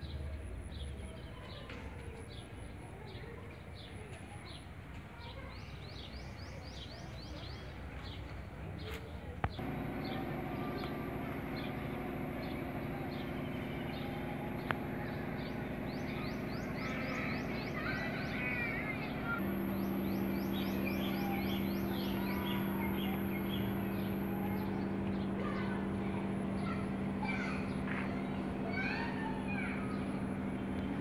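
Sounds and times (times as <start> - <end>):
birds chirping: 0.0 - 31.0
low machine hum: 9.6 - 31.0.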